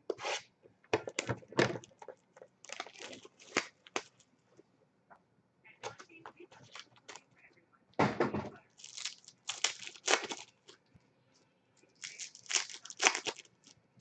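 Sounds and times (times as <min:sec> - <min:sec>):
wrapper crinkling: 0:01.8 - 0:04.3, 0:08.8 - 0:10.8, 0:11.9 - 0:13.8
cardboard tearing: 0:08.8 - 0:10.5, 0:12.0 - 0:13.5.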